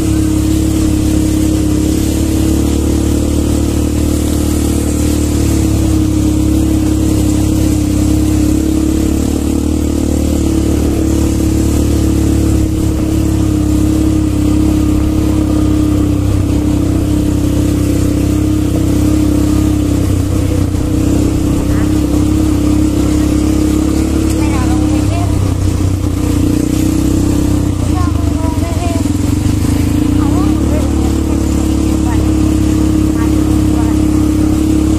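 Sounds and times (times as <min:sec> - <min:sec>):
quad bike engine running: 0:00.0 - 0:34.9.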